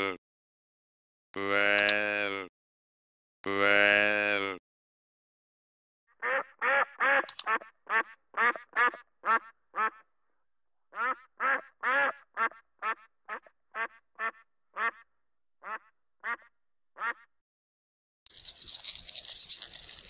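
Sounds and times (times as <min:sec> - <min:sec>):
ducks quacking: 0:06.2 - 0:10.0, 0:11.0 - 0:15.0, 0:15.6 - 0:17.3.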